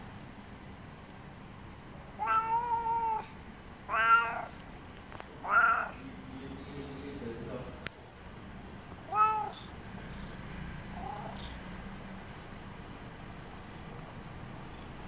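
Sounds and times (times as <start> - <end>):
cat meowing: 2.2 - 4.6, 5.4 - 6.0, 9.0 - 9.7, 11.0 - 11.6.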